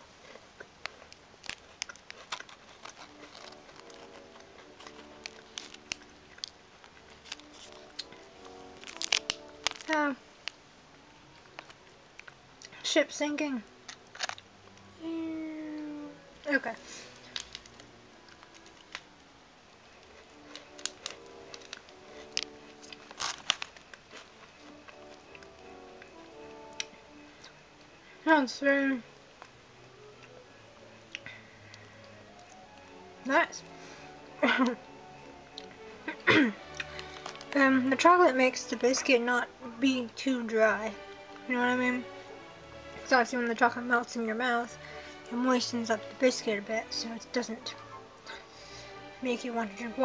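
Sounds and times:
faint background music: 0.0s - 50.0s
biscuit crunching and chewing: 0.2s - 10.6s, 11.4s - 12.8s, 13.8s - 14.9s, 17.0s - 19.2s, 19.9s - 27.6s, 35.5s - 37.6s
foil wrapper crackling: 0.7s - 10.6s, 11.4s - 12.3s, 13.9s - 14.5s, 16.5s - 19.2s, 19.9s - 26.9s, 36.6s - 39.1s.

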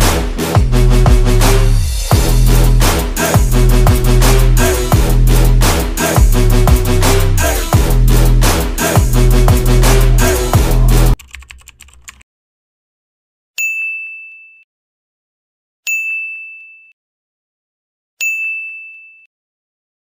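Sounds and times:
electronic music: 0.0s - 11.2s
ding chime: 13.6s - 14.7s, 15.9s - 17.0s, 18.2s - 19.3s.

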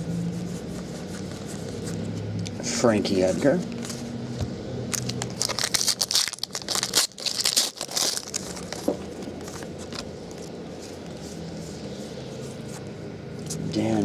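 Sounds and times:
handling of cards: 0.2s - 2.5s, 3.6s - 13.7s
foil wrapper tearing and crinkling: 4.9s - 10.4s.

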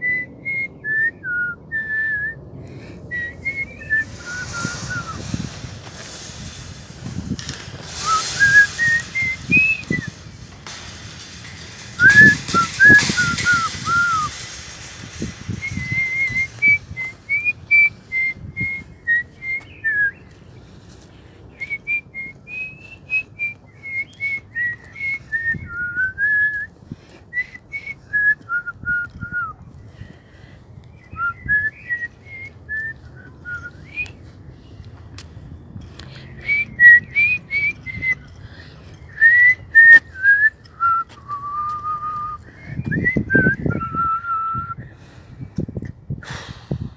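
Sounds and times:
woman whistling a tune: 0.0s - 2.4s, 3.1s - 5.2s, 8.0s - 10.1s, 12.0s - 14.3s, 15.5s - 20.2s, 21.6s - 26.7s, 27.3s - 29.6s, 31.0s - 34.2s, 36.4s - 38.2s, 39.2s - 44.8s
wind gusts on microphone: 0.0s - 46.9s.

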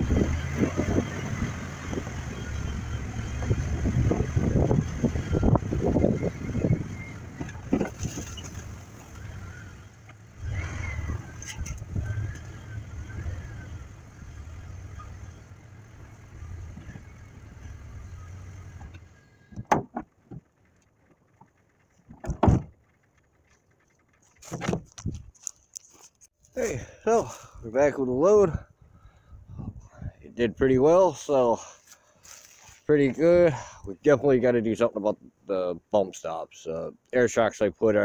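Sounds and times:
truck engine rumble: 0.0s - 37.8s
faint squeals: 5.1s - 15.6s.

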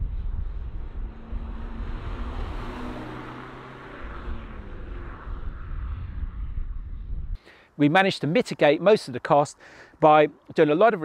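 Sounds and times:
car engine driving past: 0.0s - 7.3s.

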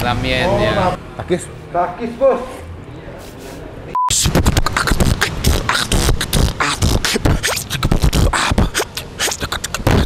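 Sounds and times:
test-tone beep: 3.9s - 4.2s
man beatboxing: 4.1s - 10.0s.

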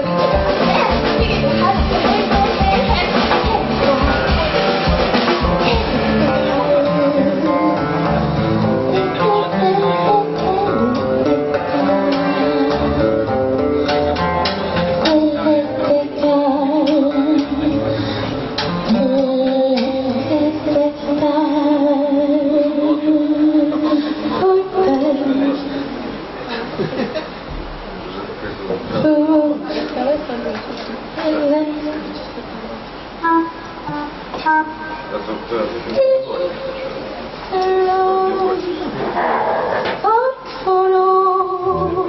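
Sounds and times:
woman singing into a microphone: 5.6s - 13.0s, 14.9s - 26.0s, 28.9s - 32.5s, 36.0s - 42.0s.

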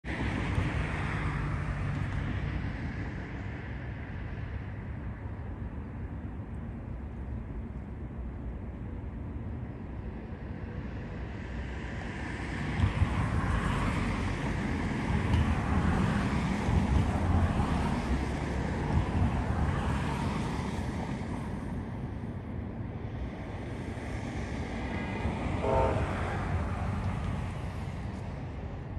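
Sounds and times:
freight train rumbling past: 0.1s - 28.9s
wind noise on microphone: 8.8s - 28.9s.

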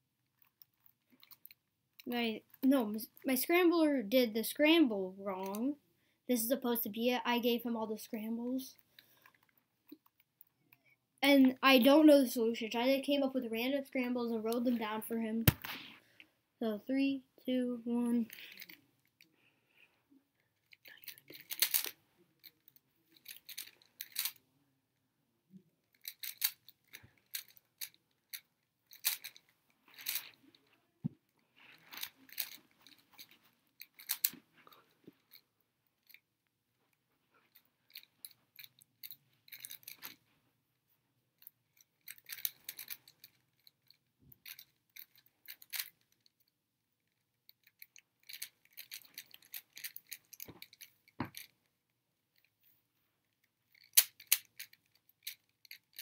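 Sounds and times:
puzzle cube plastic clicking: 20.9s - 22.0s, 25.9s - 29.4s, 53.8s - 56.0s.

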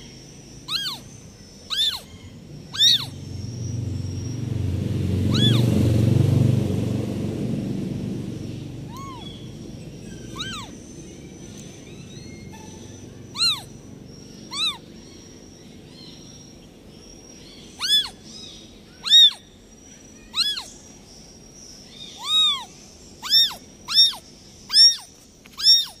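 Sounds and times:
kitten mewing: 0.7s - 1.1s, 1.7s - 2.1s, 2.7s - 3.2s, 5.3s - 5.6s, 8.9s - 9.5s, 10.2s - 10.8s, 13.3s - 13.8s, 14.5s - 14.8s, 17.8s - 18.2s, 19.0s - 19.4s, 20.3s - 20.7s, 22.2s - 26.0s.

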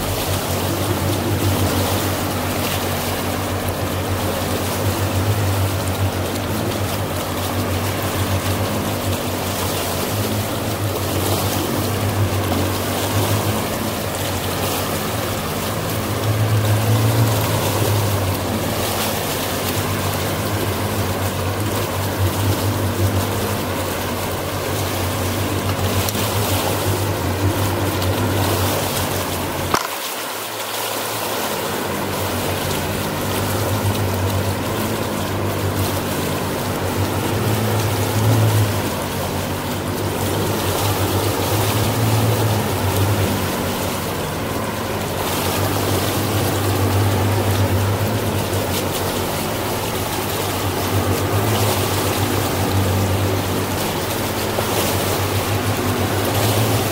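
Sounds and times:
motorboat engine humming: 0.0s - 56.9s
water splashing along hull: 0.0s - 56.9s.

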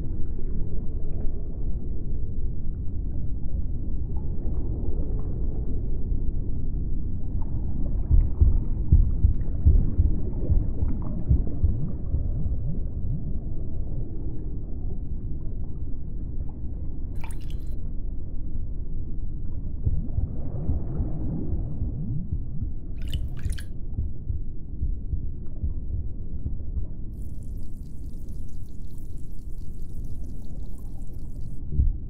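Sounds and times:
low watery rumble: 0.0s - 32.0s
gurgling bubbling blips: 17.2s - 17.8s, 22.2s - 24.2s, 27.1s - 32.0s.

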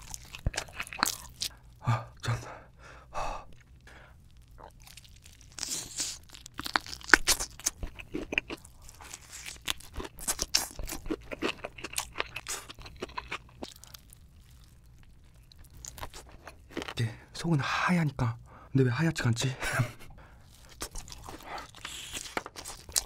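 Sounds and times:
crunchy chicken being chewed: 0.0s - 1.8s, 3.5s - 17.0s, 20.4s - 23.0s.

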